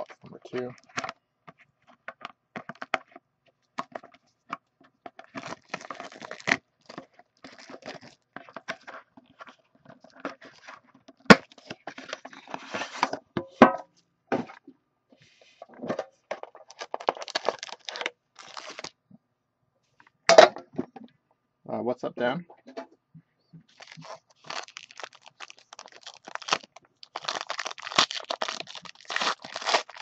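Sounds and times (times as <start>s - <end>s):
cellophane crinkling and tearing: 0.0s - 1.1s, 5.1s - 13.0s, 16.6s - 19.0s, 23.7s - 30.0s.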